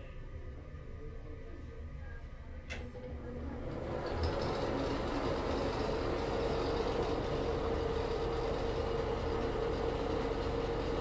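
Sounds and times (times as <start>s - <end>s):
exhaust fan humming and rattling: 2.4s - 11.0s.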